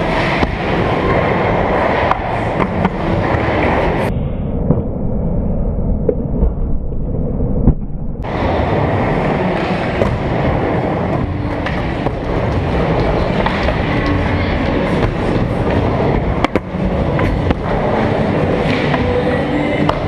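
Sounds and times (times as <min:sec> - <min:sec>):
skateboard wheels rolling on wood: 0:08.2 - 0:20.0
skateboard clacks: 0:11.2 - 0:19.2.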